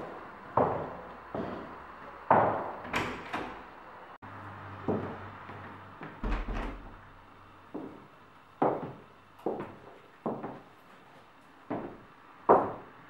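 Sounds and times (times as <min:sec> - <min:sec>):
footsteps on wooden floor: 0:00.6 - 0:02.8, 0:08.6 - 0:11.1, 0:11.7 - 0:12.9.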